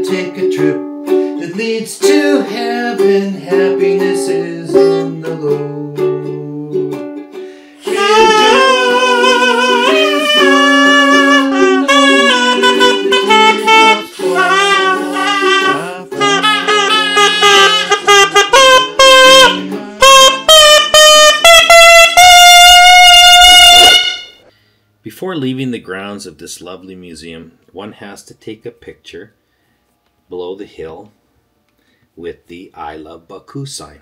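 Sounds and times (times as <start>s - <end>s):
shawm playing a melody: 0.0s - 24.5s
held drone notes: 7.8s - 20.9s.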